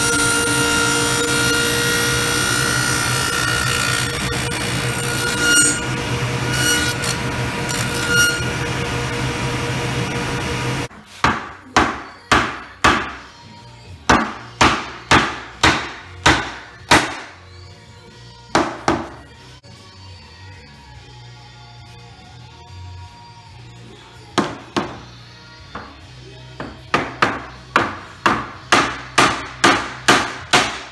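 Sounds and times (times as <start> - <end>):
table saw whining: 0.0 - 10.9.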